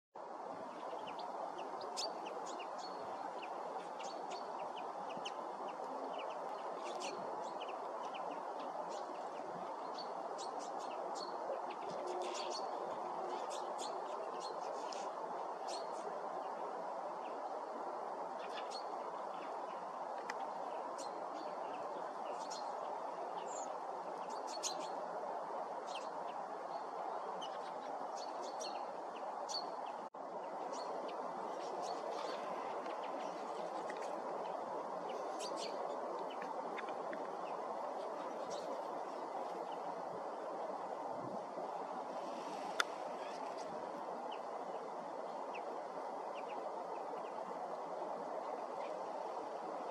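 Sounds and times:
steady background hiss: 0:00.2 - 0:49.9
flock of finches calling: 0:00.8 - 0:16.0, 0:35.1 - 0:36.5.

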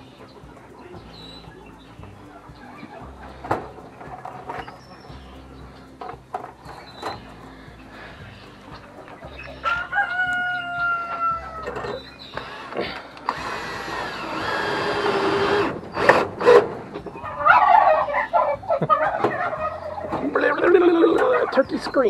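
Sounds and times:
rooster crowing: 0:09.6 - 0:12.6, 0:17.2 - 0:20.2
clicks and knocks of metal: 0:11.6 - 0:12.5.

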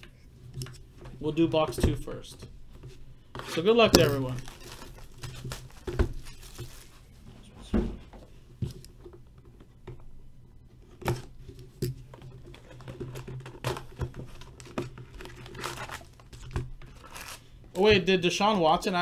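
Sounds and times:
plastic wrap crinkling and tearing: 0:04.0 - 0:07.0, 0:13.6 - 0:17.5.

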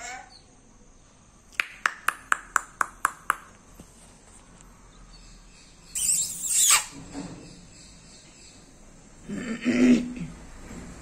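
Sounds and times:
parakeet clicking: 0:01.6 - 0:03.6
parakeet screech: 0:06.0 - 0:07.0.

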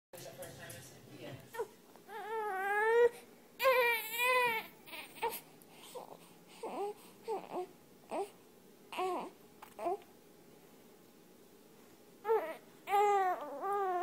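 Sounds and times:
baby crying: 0:01.5 - 0:10.0, 0:12.2 - 0:14.0.

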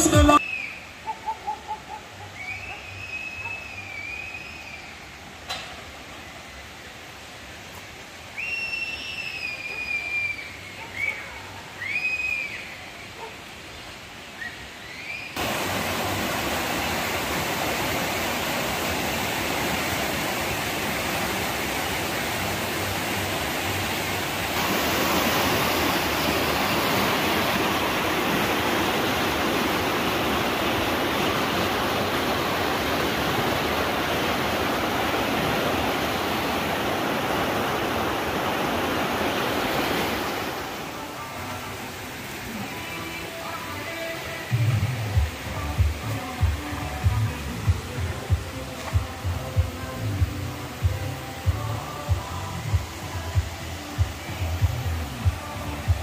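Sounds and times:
high sliding whistle-like calls: 0:00.0 - 0:01.4, 0:02.3 - 0:05.1, 0:08.3 - 0:13.2, 0:14.3 - 0:15.4
river rushing over stones: 0:02.4 - 0:56.0.

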